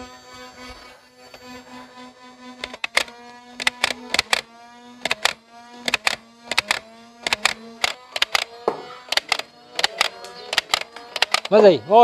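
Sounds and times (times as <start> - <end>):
toy blaster humming: 0.0 - 12.0
dart firing snaps: 5.0 - 11.6.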